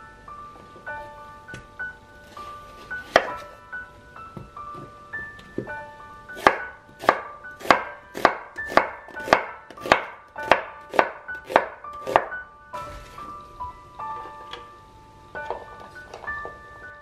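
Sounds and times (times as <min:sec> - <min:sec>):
knife chopping onion on board: 0:03.1 - 0:03.4, 0:06.4 - 0:12.4.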